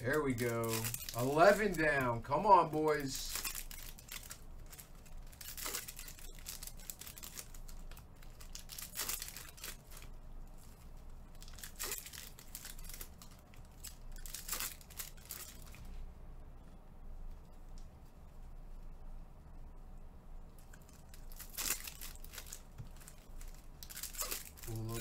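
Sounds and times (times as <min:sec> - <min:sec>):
card pack wrappers tearing: 0:00.0 - 0:15.8, 0:20.6 - 0:25.0.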